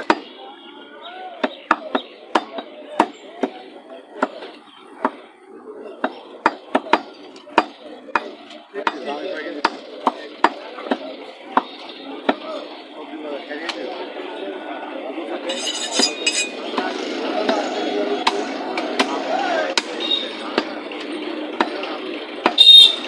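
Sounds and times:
people talking: 0.0s - 23.0s
cleaver chopping meat on wood: 1.4s - 3.6s, 6.0s - 9.0s, 9.6s - 11.0s.

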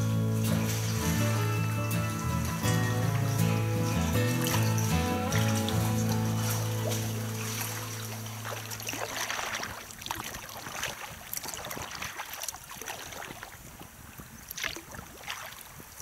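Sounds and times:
paddle splashing in water: 0.0s - 16.0s.

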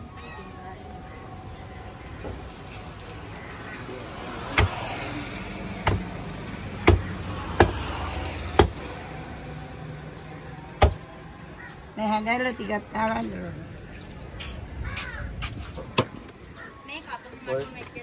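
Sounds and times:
knife chopping on wooden block: 5.8s - 6.1s, 6.8s - 7.8s.

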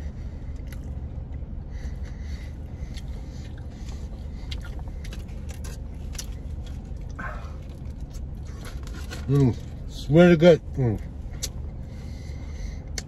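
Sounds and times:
person chewing: 0.0s - 9.8s, 11.0s - 12.3s
car cabin rumble: 0.0s - 13.0s.

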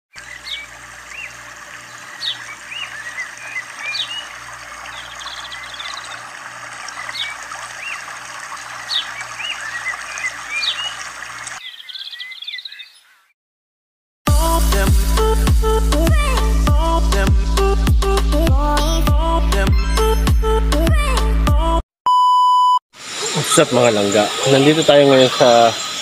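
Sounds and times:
stream running over rocks: 0.2s - 11.6s
small birds chirping: 0.2s - 13.4s, 23.1s - 26.0s.

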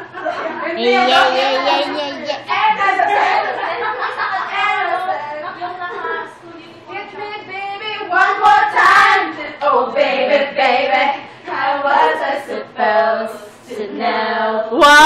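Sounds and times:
women singing unaccompanied: 4.4s - 15.0s.

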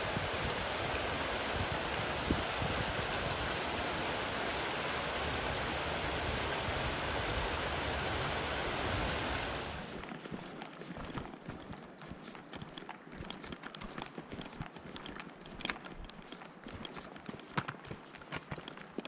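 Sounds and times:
steady rushing noise: 0.0s - 10.1s.

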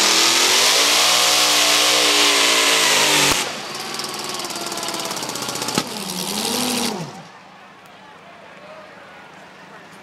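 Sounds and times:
tractor engine at full throttle: 0.0s - 7.4s.

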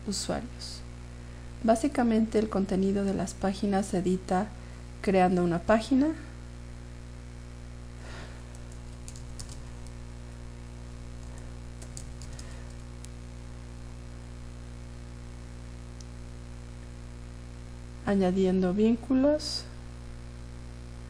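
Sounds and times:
electrical hum: 0.0s - 21.0s
keyboard keys clicking: 8.5s - 9.6s, 11.2s - 12.8s.

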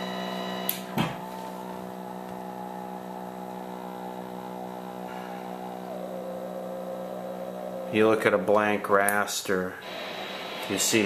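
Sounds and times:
television electrical hum: 0.0s - 11.0s.

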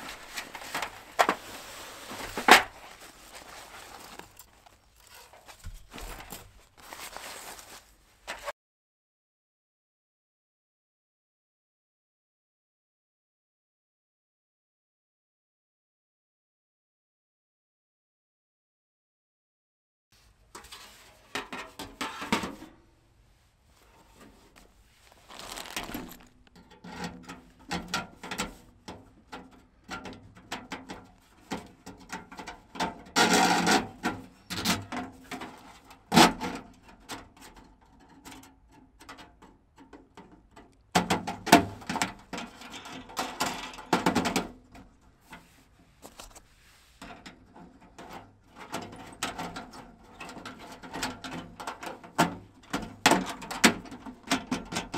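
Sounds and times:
thin metal panels clinking and rattling: 0.0s - 7.1s, 25.2s - 28.6s.

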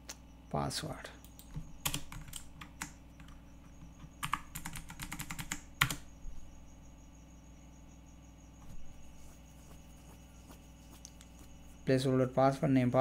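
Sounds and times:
typing on computer keyboard: 1.2s - 3.4s, 4.2s - 6.1s.

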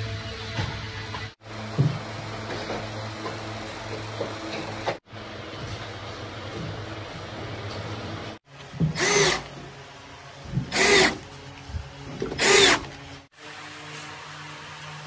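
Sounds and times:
cordless drill driving screws: 8.9s - 9.5s, 10.7s - 11.2s, 12.2s - 12.9s.

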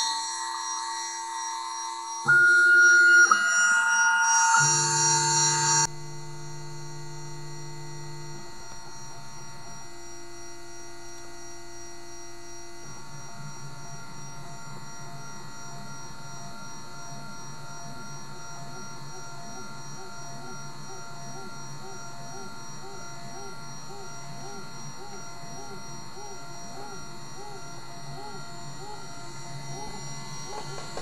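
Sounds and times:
spindle high whine: 0.0s - 31.0s
stepper motor tones: 2.2s - 10.7s.

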